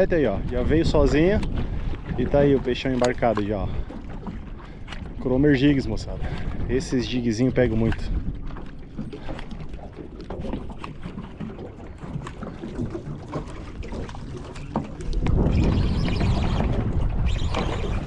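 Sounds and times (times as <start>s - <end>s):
rush of wind and water: 0.0s - 18.0s
water slapping against boat hull: 0.0s - 18.0s.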